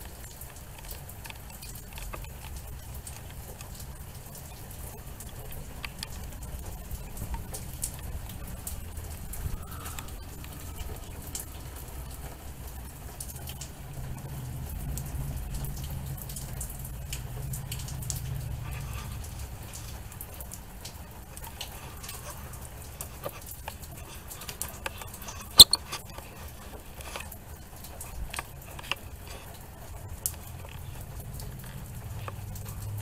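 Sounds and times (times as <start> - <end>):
rain dripping and pattering: 0.0 - 33.0
sharp clicks: 25.5 - 25.9.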